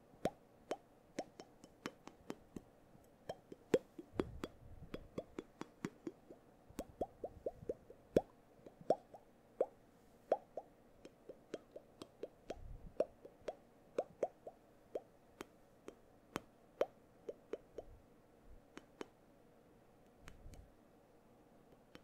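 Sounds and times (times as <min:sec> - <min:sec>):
lip pops: 0:00.2 - 0:02.7, 0:03.3 - 0:15.6
tongue clicks: 0:00.2 - 0:18.0, 0:18.7 - 0:19.2.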